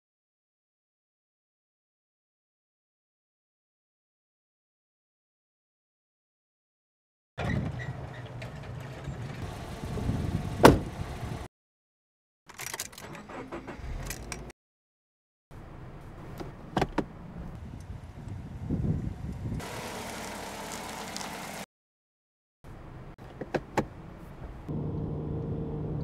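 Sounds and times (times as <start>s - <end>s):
car door latch clunk: 10.6s - 10.9s, 16.4s - 17.1s, 23.3s - 24.0s.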